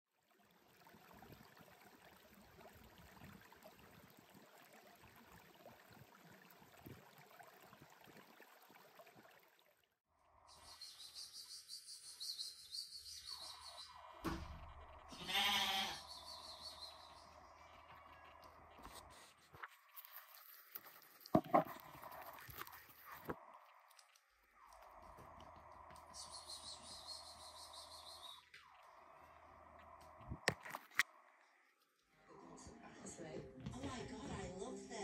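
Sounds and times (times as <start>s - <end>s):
thump: 14.2s - 14.6s
lamb bleating: 15.1s - 16.0s.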